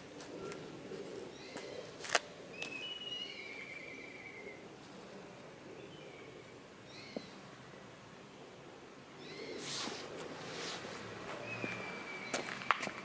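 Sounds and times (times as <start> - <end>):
small birds chirping: 0.2 - 4.6, 11.4 - 13.0.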